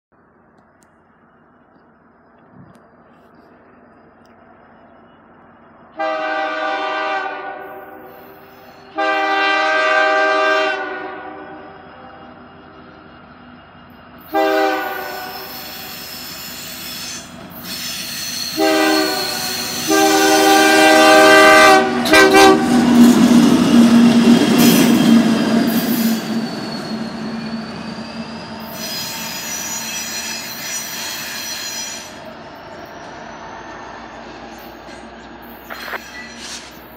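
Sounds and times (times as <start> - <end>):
locomotive engine and wheels passing: 0.2 - 7.0, 7.6 - 36.9
locomotive air horn blasts: 6.0 - 8.1, 8.9 - 11.8, 14.2 - 16.0, 17.0 - 22.8
faint wheel squeal: 15.2 - 19.9, 25.7 - 36.9.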